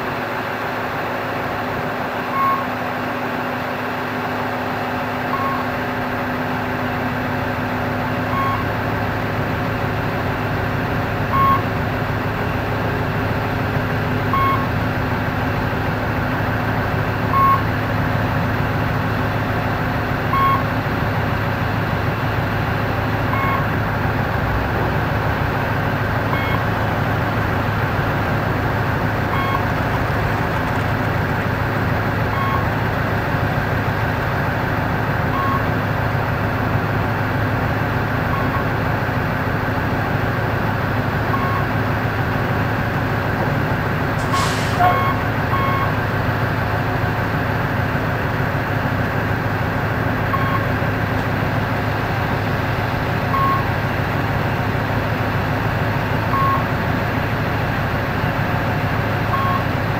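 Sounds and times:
heavy diesel engine running: 0:00.0 - 0:59.9
short warning beeps: 0:02.3 - 0:02.7, 0:05.3 - 0:05.7, 0:08.3 - 0:08.7, 0:11.3 - 0:11.7, 0:14.3 - 0:14.7, 0:17.3 - 0:17.7, 0:20.3 - 0:20.7, 0:23.3 - 0:23.7, 0:26.3 - 0:26.7, 0:29.3 - 0:29.8, 0:32.3 - 0:32.7, 0:35.3 - 0:35.7, 0:38.3 - 0:38.8, 0:41.3 - 0:41.7, 0:44.3 - 0:45.9, 0:50.3 - 0:50.7, 0:53.3 - 0:53.7, 0:56.3 - 0:56.7, 0:59.3 - 0:59.7.

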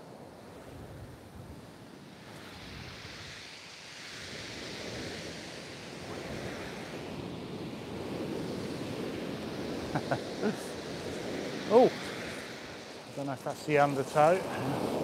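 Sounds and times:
waves breaking on shingle beach: 0:00.0 - 0:15.0.

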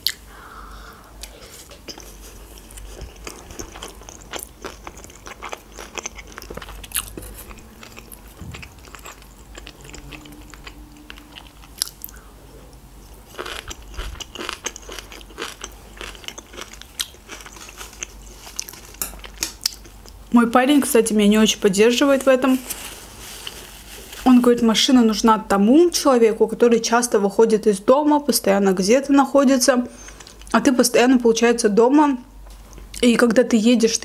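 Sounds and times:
person chewing: 0:00.0 - 0:00.3, 0:01.2 - 0:20.2.

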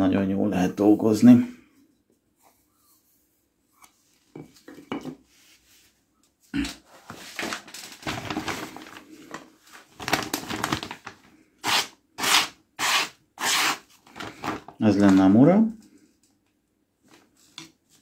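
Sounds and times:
paper rustling and crinkling: 0:06.9 - 0:11.4, 0:13.9 - 0:15.4
knife slicing paper: 0:11.6 - 0:13.9.

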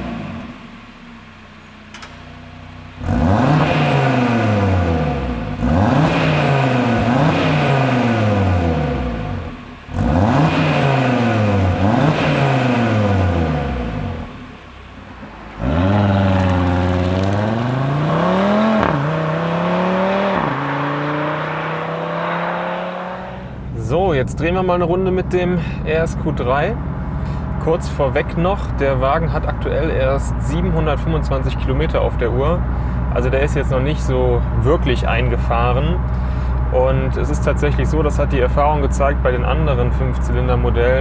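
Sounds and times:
car engine revving: 0:00.0 - 0:41.0.

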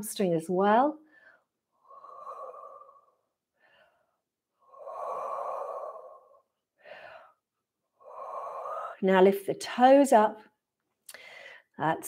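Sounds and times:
woman breathing: 0:01.0 - 0:09.0, 0:11.1 - 0:11.8.

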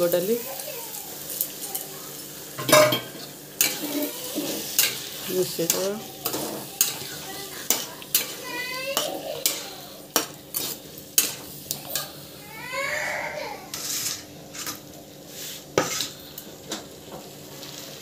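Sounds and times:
spice paste sizzling: 0:00.0 - 0:12.5, 0:13.7 - 0:18.0
metal spatula scraping a pan: 0:02.6 - 0:12.2, 0:13.7 - 0:16.2.

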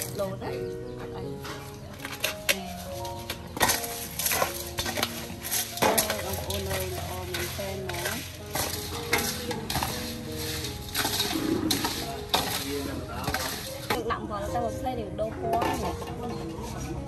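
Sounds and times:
eels slithering in salt: 0:03.6 - 0:13.9.

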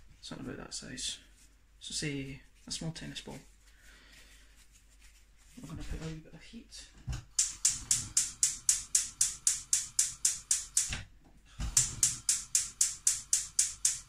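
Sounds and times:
gas hob spark igniter clicking: 0:07.4 - 0:11.0, 0:11.7 - 0:14.0.

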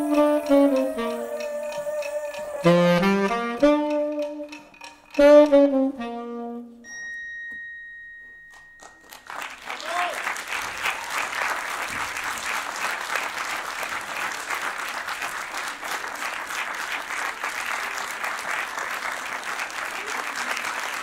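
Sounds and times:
audience applauding: 0:00.0 - 0:03.1, 0:08.8 - 0:21.0.

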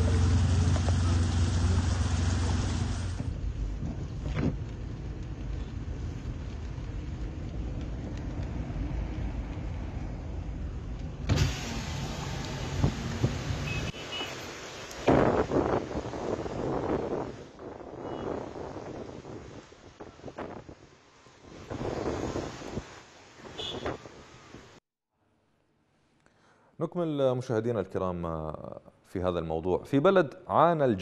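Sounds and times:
car rolling rumble: 0:00.0 - 0:13.9
car engine hum: 0:00.0 - 0:14.0.

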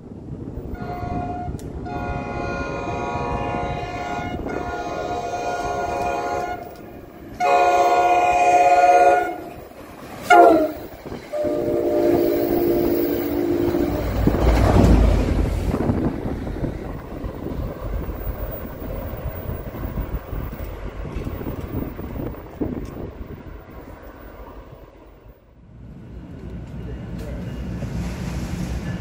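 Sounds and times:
train wheels rumbling on rails: 0:00.0 - 0:29.0
train air horn: 0:00.7 - 0:06.8, 0:07.4 - 0:09.6, 0:10.2 - 0:14.2.

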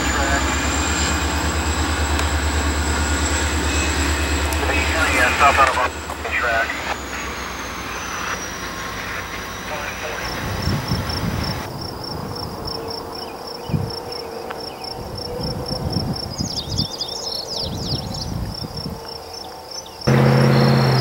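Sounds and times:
low rumble: 0:00.0 - 0:12.7
insect chirping: 0:10.2 - 0:20.6.

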